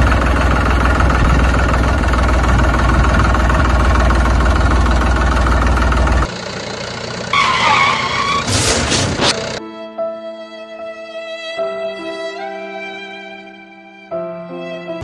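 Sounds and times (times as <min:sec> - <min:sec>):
diesel tractor engine idling: 0:00.0 - 0:09.6.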